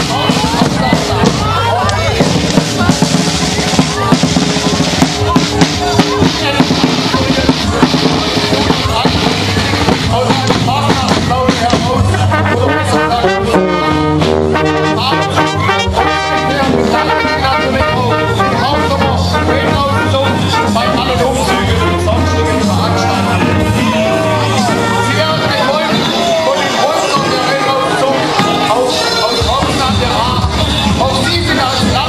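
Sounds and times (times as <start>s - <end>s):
drumbeat: 0.0s - 32.0s
marching brass band playing: 0.0s - 32.0s.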